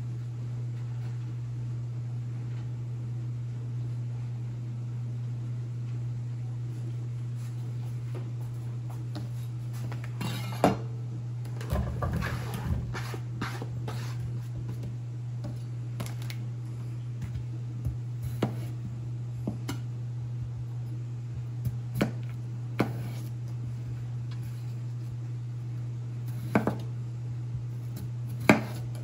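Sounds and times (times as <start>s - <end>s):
steady low hum: 0.0s - 29.0s
knife slicing potato: 17.8s - 19.8s, 21.7s - 23.4s, 26.3s - 26.9s, 27.8s - 29.0s.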